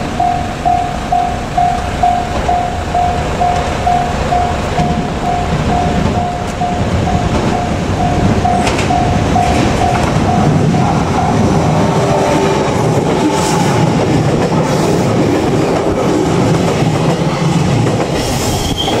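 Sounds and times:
level-crossing warning bell: 0.0s - 13.9s
train clickety-clack on rails: 0.0s - 19.0s
train wheel squeal: 18.1s - 19.0s.

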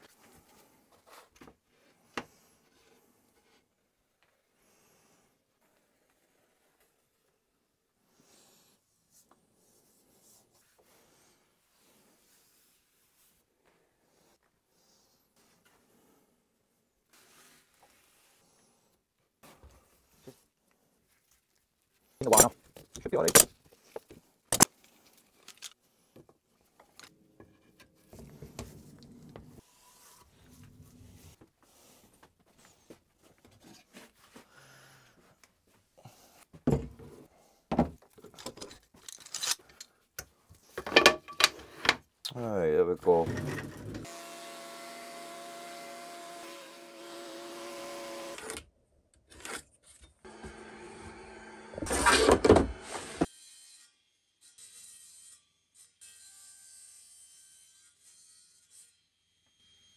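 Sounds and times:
table saw cutting wood: 43.2s - 48.5s, 50.3s - 59.9s.

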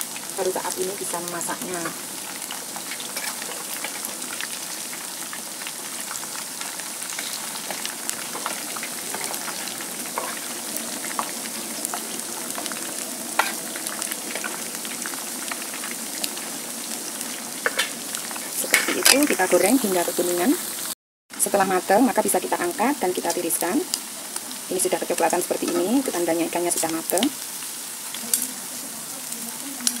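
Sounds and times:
oil crackles and pops: 0.0s - 20.0s, 23.3s - 24.7s, 26.7s - 30.0s
fish frying in hot oil: 0.0s - 30.0s.

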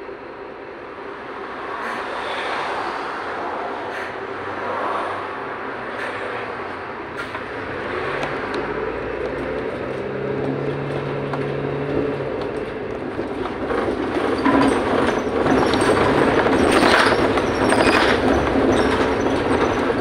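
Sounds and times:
bus engine humming: 0.0s - 20.0s
bodywork rattling and clicking: 9.2s - 20.0s.

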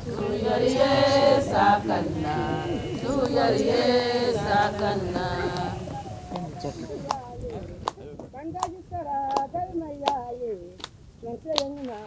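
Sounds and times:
voices chanting: 0.0s - 7.7s.

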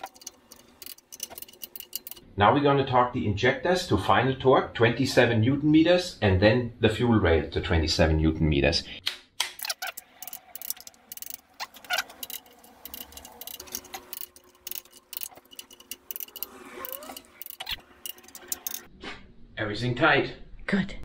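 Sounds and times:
torque wrench ratchet clicking: 0.0s - 2.2s, 9.6s - 18.9s.

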